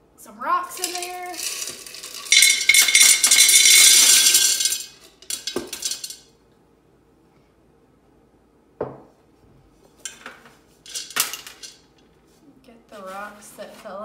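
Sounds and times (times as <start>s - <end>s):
rocks rattling into clay pot: 0.7s - 6.2s
knock: 8.8s - 9.1s.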